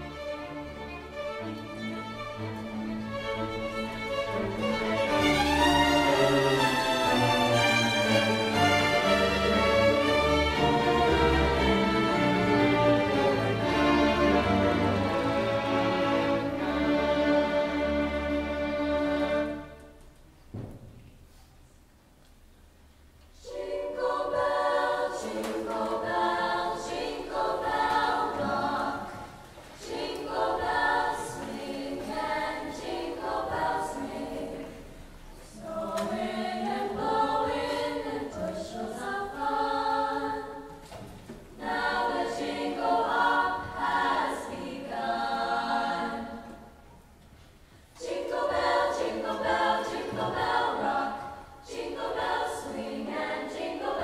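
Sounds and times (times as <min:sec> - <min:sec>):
choir singing unaccompanied: 0:01.8 - 0:19.8, 0:23.4 - 0:46.9, 0:47.9 - 0:54.0.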